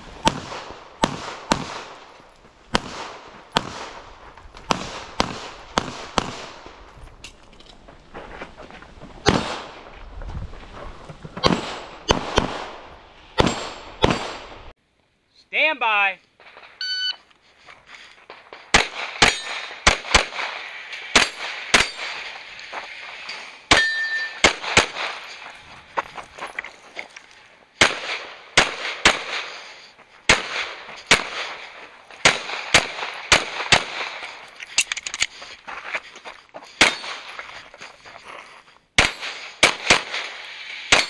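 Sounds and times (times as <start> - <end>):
pistol shots: 0.2 - 2.1, 2.7 - 4.1, 4.7 - 6.8, 11.4 - 14.7, 18.3 - 22.4, 23.7 - 25.4, 27.8 - 29.6, 30.3 - 34.5, 39.0 - 41.0
short metallic ring: 23.3 - 24.4.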